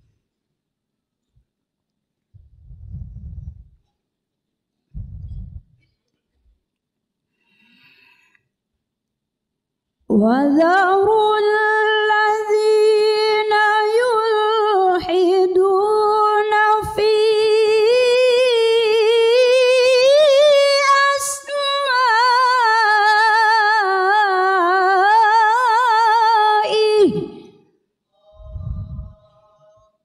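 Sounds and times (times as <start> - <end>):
woman reciting melodically: 10.1 - 27.6.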